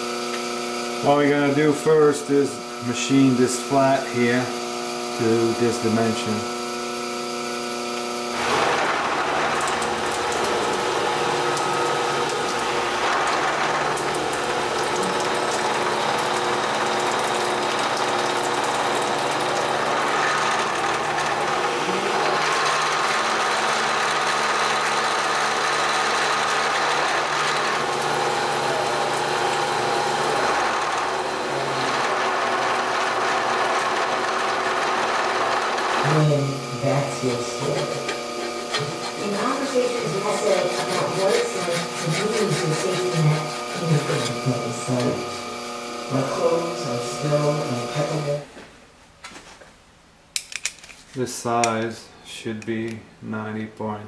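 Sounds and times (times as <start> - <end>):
milling machine cutting metal: 0.0 - 48.5.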